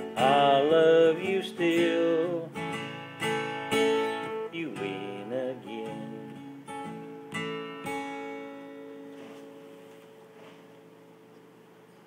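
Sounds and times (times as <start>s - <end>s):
acoustic guitar strumming chords: 0.0s - 11.3s.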